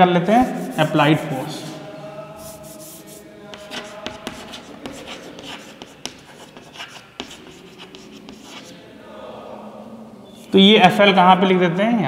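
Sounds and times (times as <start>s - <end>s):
chalk scratching on chalkboard: 0.3s - 8.8s
chalk tapping on board: 0.4s - 1.0s, 2.4s - 8.7s.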